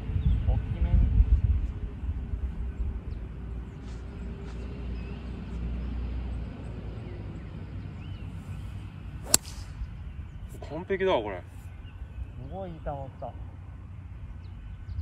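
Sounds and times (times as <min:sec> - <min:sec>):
golf club striking ball: 0:09.2 - 0:09.8.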